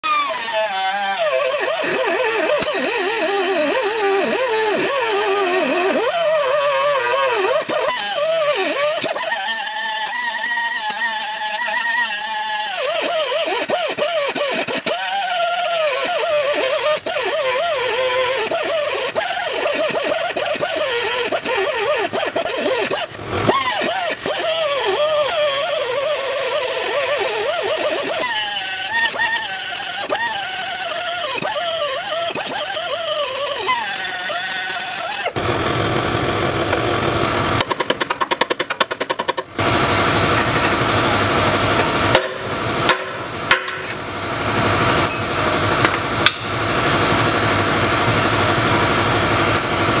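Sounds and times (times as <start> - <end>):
pneumatic cut-off tool whining: 0.0 - 50.0.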